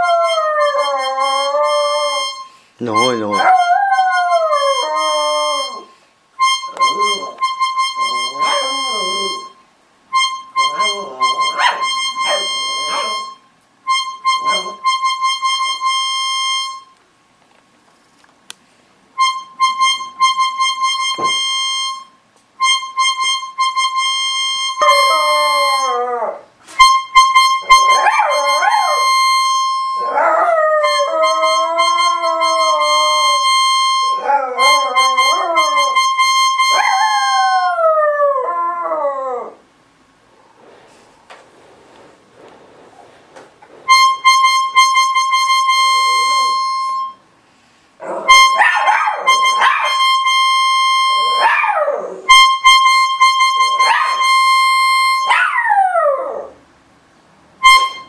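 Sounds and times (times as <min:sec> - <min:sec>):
dog howling: 0:00.0 - 0:02.4, 0:03.3 - 0:06.0, 0:08.1 - 0:09.5, 0:10.6 - 0:13.3, 0:24.8 - 0:26.5, 0:27.6 - 0:39.6, 0:45.9 - 0:46.7, 0:48.0 - 0:50.3, 0:50.9 - 0:52.4, 0:55.2 - 0:56.6
organ holding high note: 0:00.0 - 0:17.0, 0:26.8 - 0:37.6, 0:43.9 - 0:47.3, 0:48.0 - 0:55.4, 0:57.6 - 0:58.0.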